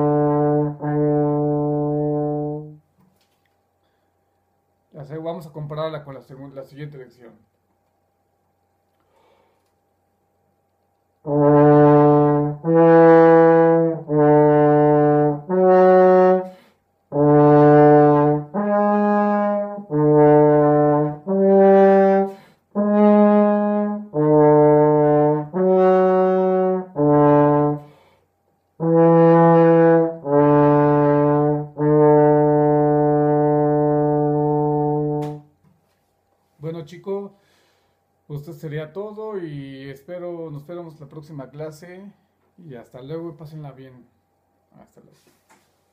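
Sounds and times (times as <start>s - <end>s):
french horn playing held notes: 0.0s - 2.8s, 11.2s - 28.0s, 28.8s - 35.5s.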